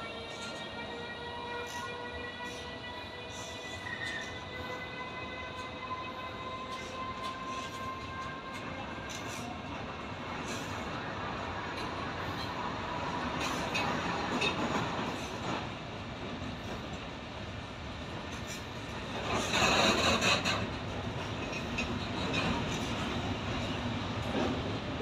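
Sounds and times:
freight train rolling past: 0:00.0 - 0:25.0.

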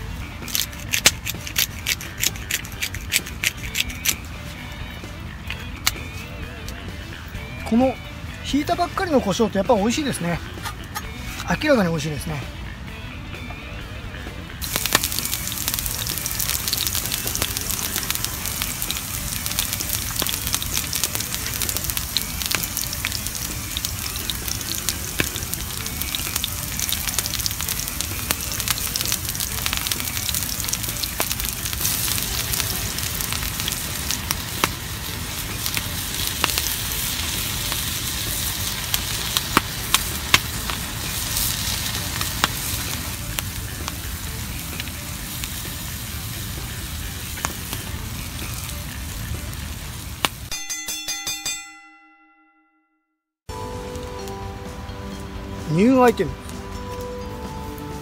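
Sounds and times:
fat crackling and ticking: 0:00.0 - 0:04.6, 0:14.6 - 0:50.5
steaks sizzling in a frying pan: 0:14.6 - 0:50.5.

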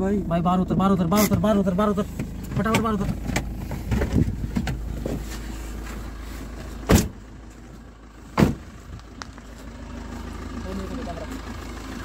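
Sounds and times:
car engine running: 0:00.0 - 0:12.0
car doors slamming: 0:06.8 - 0:07.3, 0:08.3 - 0:08.7.

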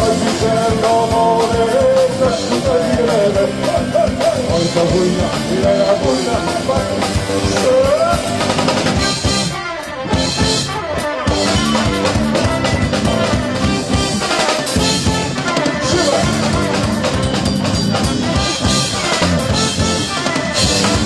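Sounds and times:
driving drum beat: 0:00.0 - 0:21.0
rock band playing: 0:00.0 - 0:21.0.

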